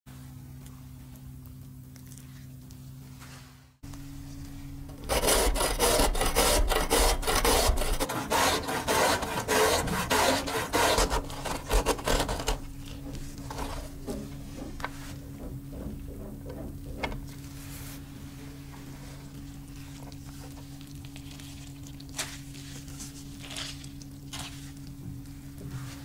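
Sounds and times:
zucchini grated on metal grater: 0:05.0 - 0:12.7.

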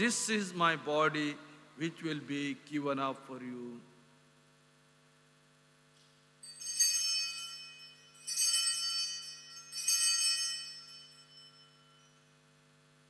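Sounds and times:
altar bells jangling: 0:06.4 - 0:12.3.

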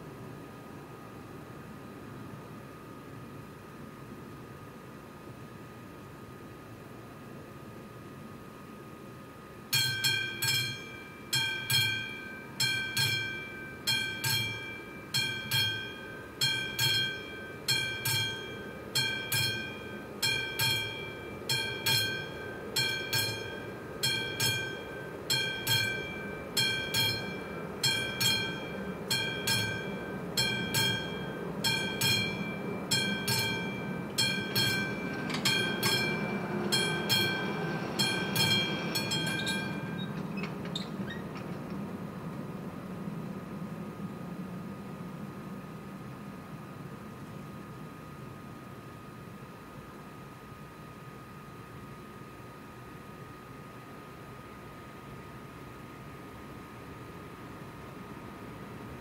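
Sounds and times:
level crossing bell ringing: 0:09.8 - 0:40.2.

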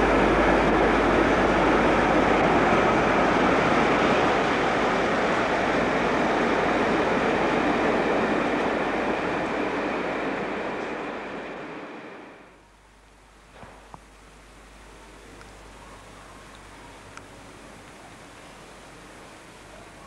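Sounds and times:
train wheel noise: 0:00.0 - 0:12.6
diesel locomotive engine: 0:00.0 - 0:13.9.

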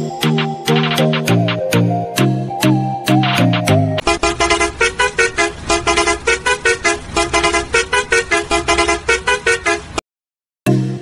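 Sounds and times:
fast bright horn-like notes: 0:04.0 - 0:10.0.

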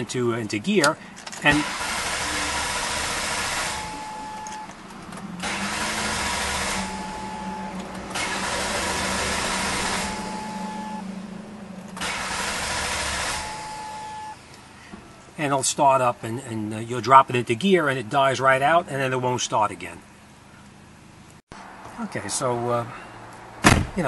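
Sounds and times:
car engine idling: 0:01.0 - 0:15.4.

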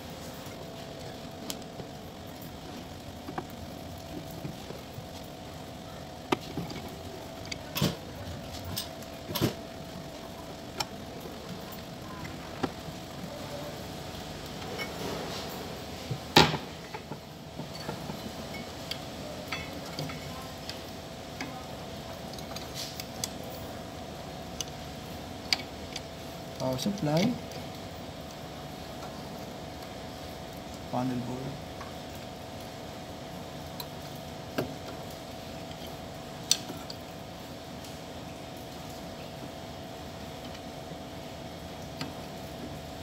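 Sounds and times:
steady hum: 0:00.0 - 0:43.0
cables and connectors clicking: 0:35.6 - 0:37.0.

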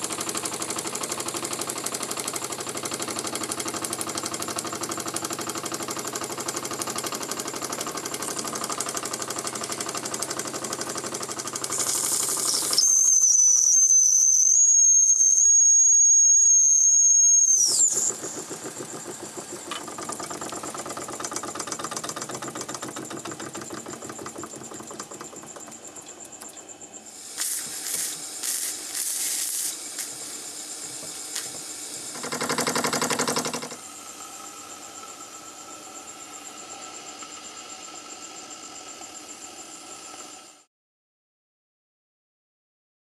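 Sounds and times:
toy steam engine chuffing: 0:00.0 - 0:26.3, 0:26.9 - 0:40.7
steady steam hiss: 0:09.2 - 0:12.8, 0:26.9 - 0:40.6
sharp bursts of hissing steam: 0:09.2 - 0:19.7, 0:27.0 - 0:40.6.

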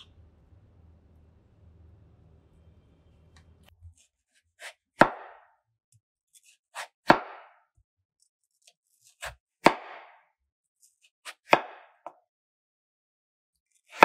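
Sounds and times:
knife slicing potato: 0:03.7 - 0:05.5, 0:06.3 - 0:07.6, 0:08.2 - 0:12.2, 0:13.7 - 0:14.0.

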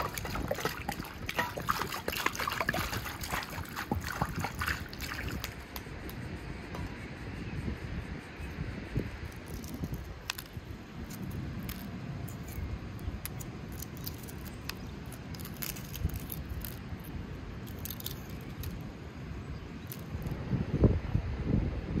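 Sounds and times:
eggshell crackling: 0:00.0 - 0:06.2, 0:09.3 - 0:18.9.

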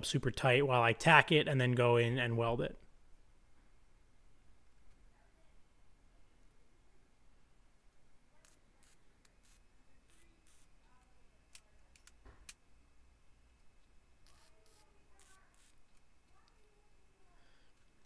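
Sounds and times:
welding arc crackling: 0:14.2 - 0:16.5.

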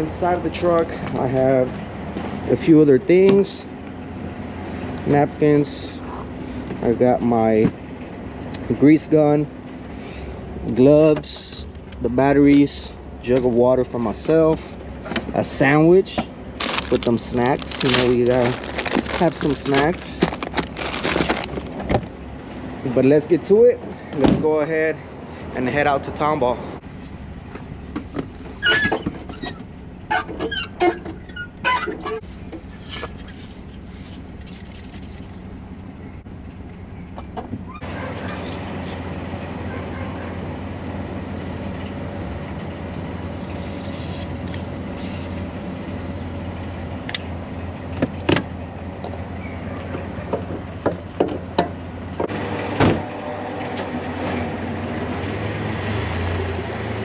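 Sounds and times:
pickup engine running: 0:07.6 - 0:22.9.

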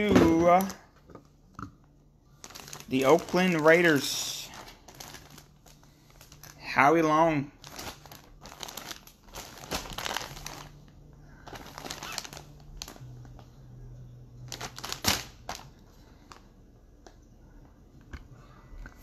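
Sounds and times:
plastic bag crinkling: 0:02.3 - 0:13.5, 0:14.4 - 0:16.5.

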